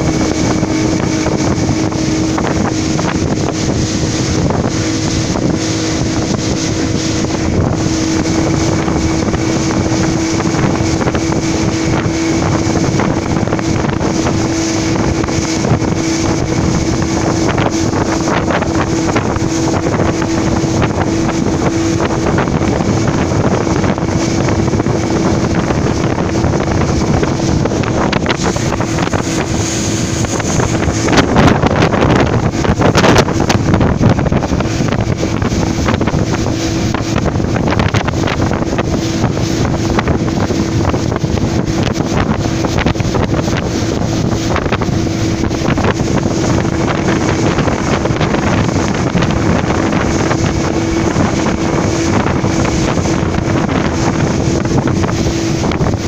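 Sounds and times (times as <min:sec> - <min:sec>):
motorboat engine running: 0:00.0 - 0:56.0
water rushing against hull: 0:00.0 - 0:56.0
wind buffeting microphone: 0:00.0 - 0:56.0.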